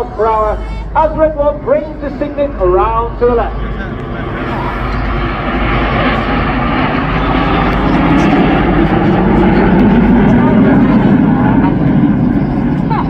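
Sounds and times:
jets rushing overhead: 0.0 - 13.0.

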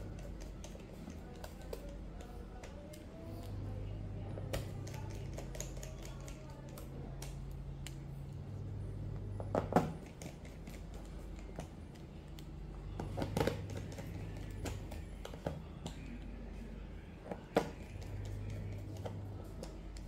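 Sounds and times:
low hum: 1.9 - 10.0.

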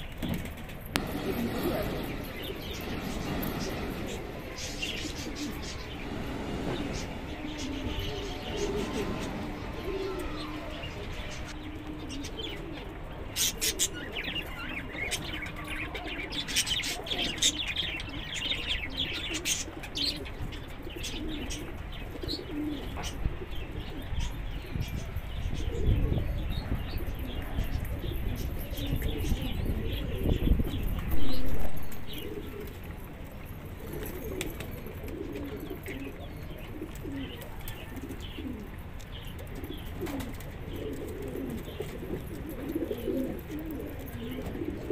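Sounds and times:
wings flapping: 0.0 - 10.6, 39.6 - 44.9
pigeons cooing: 0.0 - 44.9
small birds chirping: 0.0 - 44.9
low rumbling: 1.0 - 11.8, 30.7 - 32.5.

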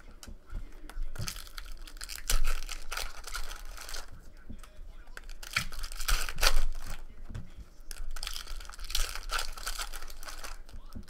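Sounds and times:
foil wrappers tearing and crinkling: 1.2 - 4.2, 5.2 - 7.1, 7.9 - 11.0.

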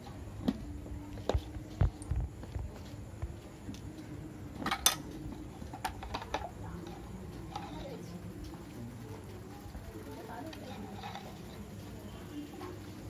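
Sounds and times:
metal spoon clinking in metal bowl: 4.7 - 5.1.

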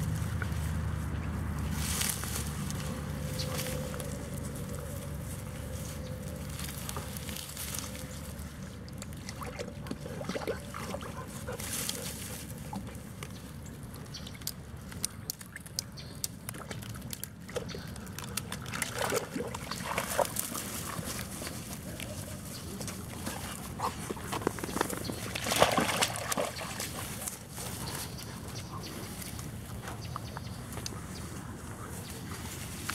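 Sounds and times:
rustling grass stems: 0.0 - 8.8, 11.3 - 13.4, 19.7 - 24.0
water sloshing: 6.4 - 28.0
small clicks and crackles: 11.6 - 19.0.

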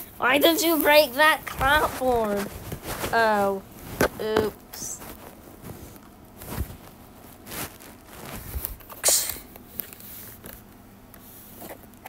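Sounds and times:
handling noise taps and rustles: 0.4 - 9.0.

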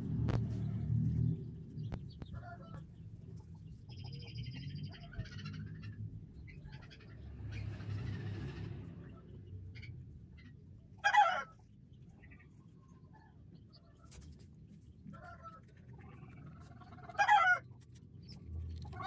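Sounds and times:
low rumble: 0.0 - 11.0
birds calling: 1.4 - 14.3.

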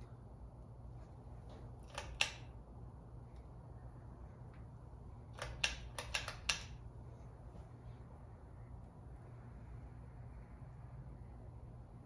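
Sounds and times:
ceiling fan motor humming: 0.0 - 12.0
sharp clicks: 1.8 - 2.6, 5.3 - 6.8.

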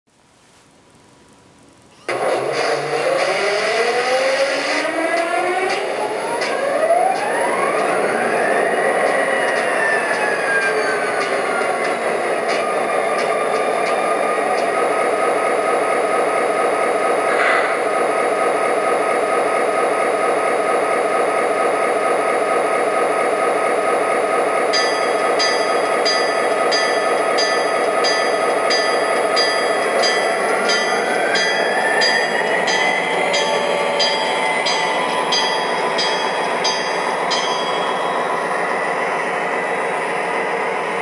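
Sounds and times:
diesel engine drone from speaker: 2.0 - 26.1
locomotive bell ringing: 24.7 - 39.0.

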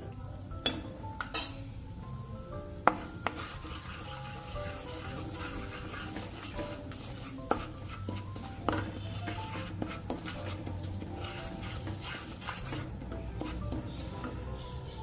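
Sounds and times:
spatula knocking against pan: 2.8 - 3.8, 5.4 - 14.5
wooden spatula scraping pan: 2.9 - 14.8.

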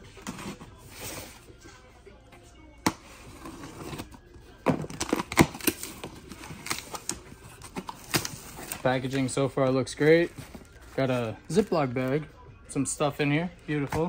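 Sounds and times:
tape tearing: 4.7 - 8.9
box cutter slicing packing tape: 4.9 - 7.0.

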